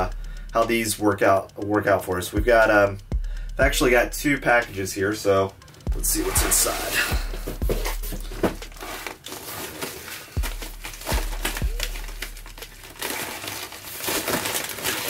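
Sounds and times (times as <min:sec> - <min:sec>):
plastic mailer crinkling: 0:06.6 - 0:15.0.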